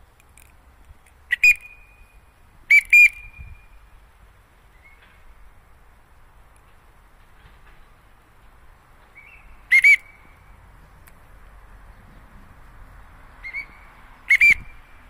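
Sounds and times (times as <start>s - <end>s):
high recall whistles: 1.3s - 3.8s, 9.2s - 10.5s, 13.4s - 15.0s.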